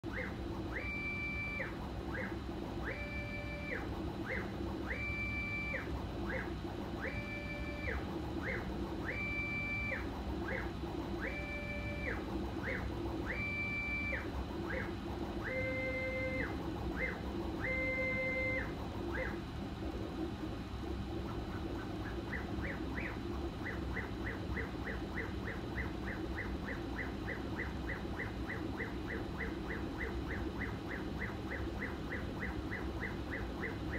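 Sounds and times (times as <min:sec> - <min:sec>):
low hum of fans: 0:00.0 - 0:33.9.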